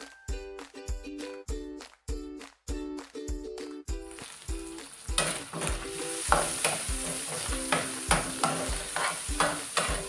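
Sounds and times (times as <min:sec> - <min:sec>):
food sizzling in oil: 0:04.0 - 0:10.0
spatula scraping wok: 0:04.3 - 0:10.0.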